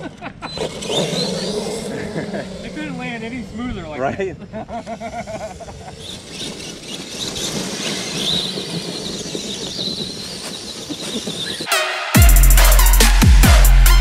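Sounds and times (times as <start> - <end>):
tires churning through leaves: 0.0 - 11.7
toy truck motor whine: 4.6 - 11.7.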